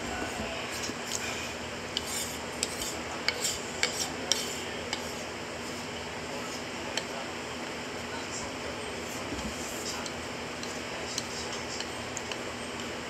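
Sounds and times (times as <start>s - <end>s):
chopsticks clicking against bowl: 10.0s - 12.9s.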